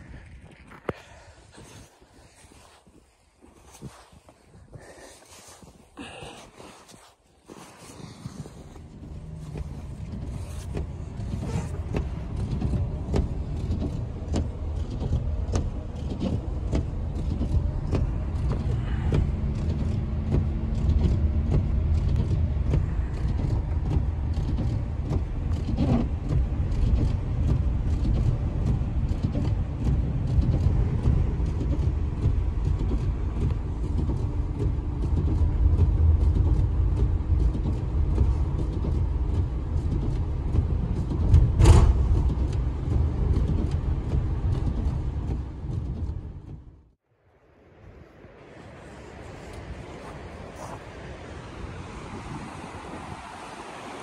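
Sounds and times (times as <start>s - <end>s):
tyres and engine rumble: 0.0s - 54.0s.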